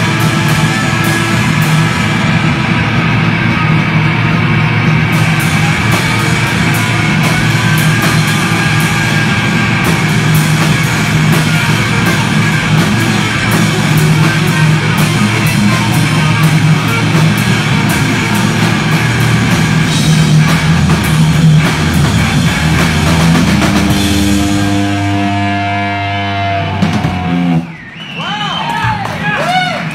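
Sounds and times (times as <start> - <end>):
distorted electric guitar: 0.0 - 27.8
electric bass: 0.0 - 27.8
drum kit with cymbal hits: 0.0 - 29.9.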